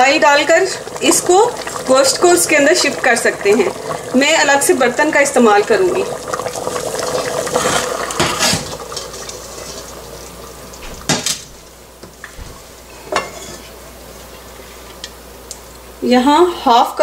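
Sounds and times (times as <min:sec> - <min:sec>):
metal cookware clinking: 0:13.1 - 0:13.7.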